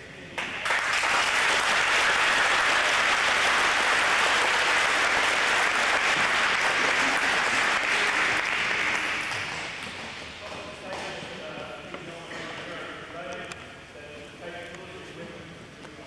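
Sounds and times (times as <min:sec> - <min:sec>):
audience applauding: 0:00.4 - 0:09.8.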